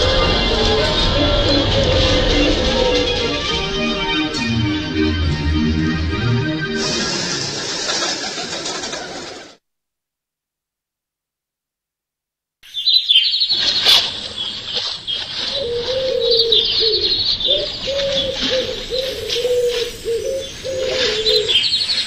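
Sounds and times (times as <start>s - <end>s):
low wavering cooing tone: 0.0s - 6.4s, 17.9s - 21.5s.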